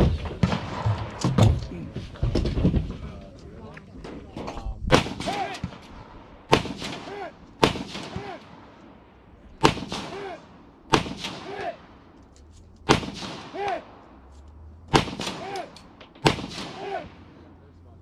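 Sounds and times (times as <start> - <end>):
rifle shots: 0.0 - 1.4, 4.9 - 12.0, 12.8 - 14.2, 14.9 - 17.4.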